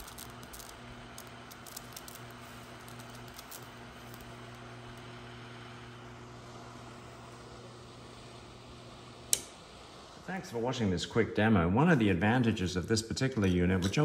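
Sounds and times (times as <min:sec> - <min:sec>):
faint crackles: 0:00.0 - 0:08.5
cooling fan: 0:00.0 - 0:14.0
electric hum with hiss: 0:00.0 - 0:14.0.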